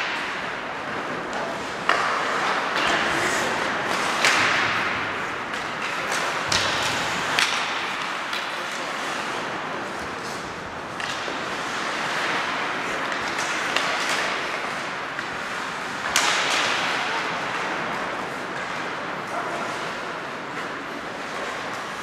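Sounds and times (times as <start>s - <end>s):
skates scraping ice: 0.0s - 22.0s
sticks and puck knocking: 5.5s - 8.9s.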